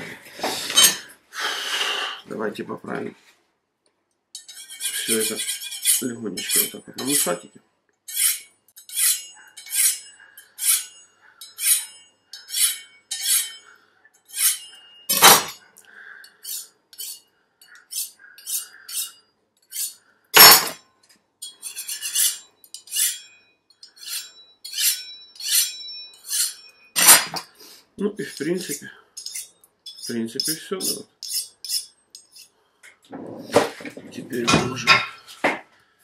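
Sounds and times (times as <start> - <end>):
knife swishing on honing steel: 8.1 - 13.6, 14.3 - 15.5, 23.9 - 27.4.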